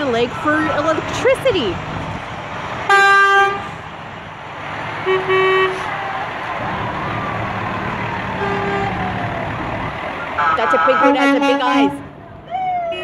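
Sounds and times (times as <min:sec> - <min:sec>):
vehicle engines rumbling: 0:00.0 - 0:13.0
vehicle horn honking: 0:05.0 - 0:05.8, 0:10.4 - 0:12.1.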